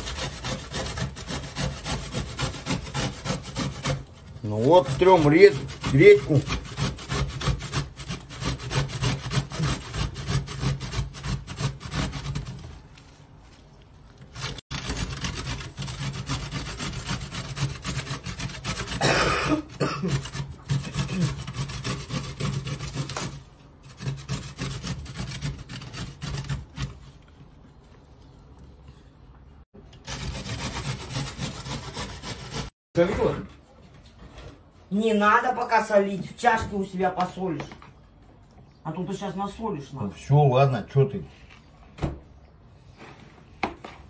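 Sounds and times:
radish grating on metal grater: 0.0 - 12.7, 14.3 - 27.2, 30.0 - 32.7.

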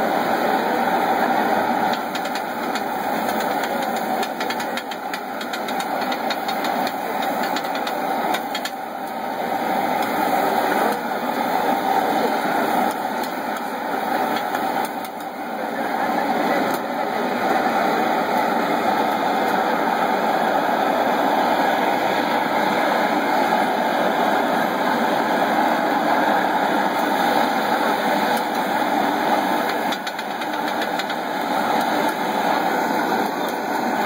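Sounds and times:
gas flames roaring: 0.0 - 34.0.

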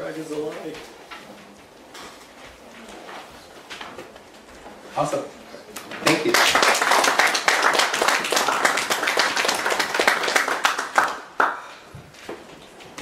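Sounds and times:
audience applauding: 6.0 - 11.8.

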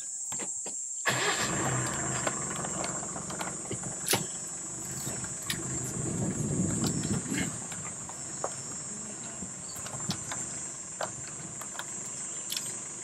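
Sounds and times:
vehicle engine low hum: 1.1 - 13.0
sharp clicks: 9.8 - 12.8.

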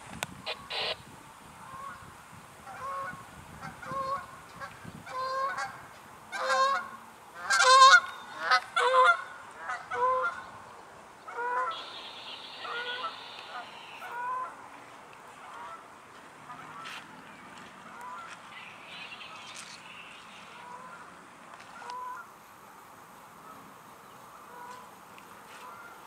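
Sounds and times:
geese honking: 0.5 - 1.0, 5.1 - 10.5, 11.3 - 22.3, 24.3 - 24.9, 25.5 - 26.0.

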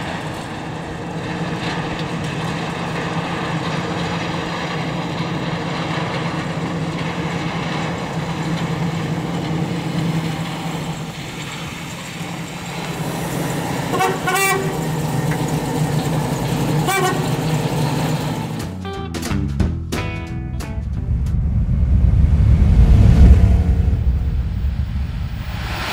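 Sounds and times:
car engine passing slowly: 20.6 - 25.9.

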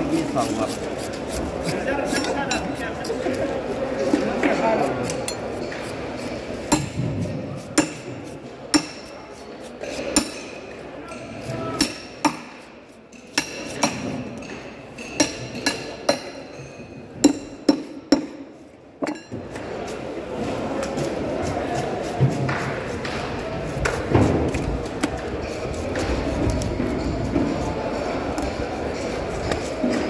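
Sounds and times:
knife chopping fish on wooden board: 7.7 - 10.4.

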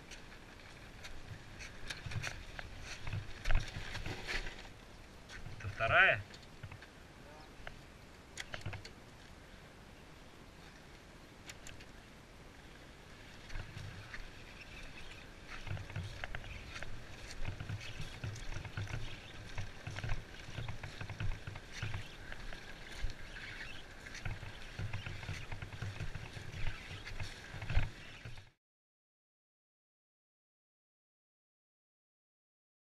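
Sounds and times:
motorcycle rumbling on rough road: 0.0 - 6.9, 13.5 - 28.6.

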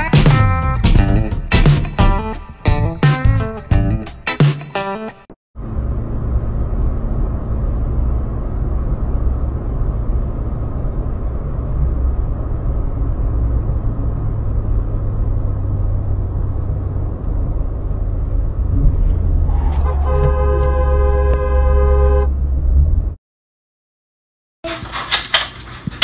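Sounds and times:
car road and engine noise: 5.6 - 23.2.

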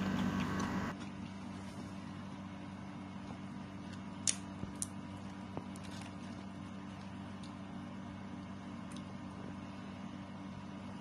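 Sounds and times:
steady low hum: 0.0 - 11.0
crispy chips snapping: 4.2 - 5.0.

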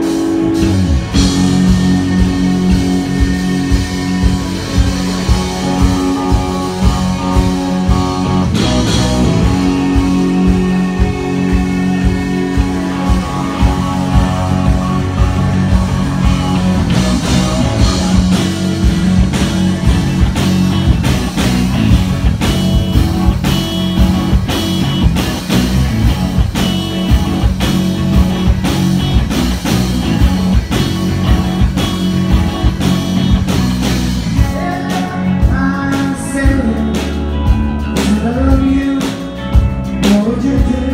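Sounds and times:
drum kit steady beat: 0.0 - 40.9
electric guitars: 0.0 - 40.9
person singing: 34.4 - 40.9.

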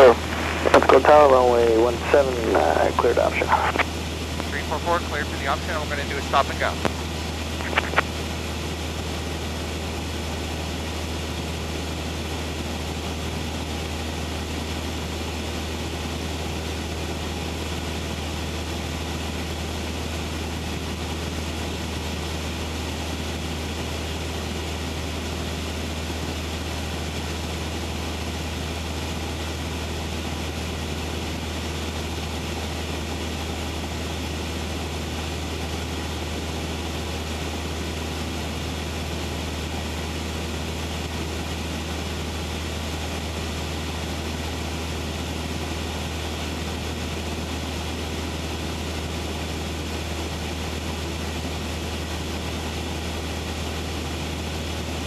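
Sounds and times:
aircraft engine droning: 0.0 - 55.0.

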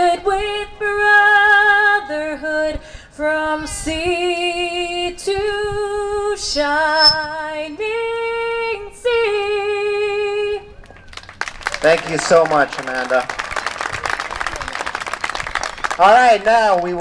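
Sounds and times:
woman singing unaccompanied: 0.0 - 10.8.

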